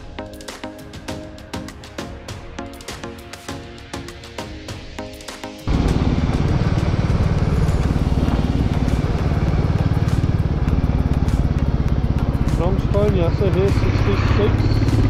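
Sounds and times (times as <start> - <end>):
background music: 0.0 - 15.0
motorcycle engine running: 5.6 - 15.0.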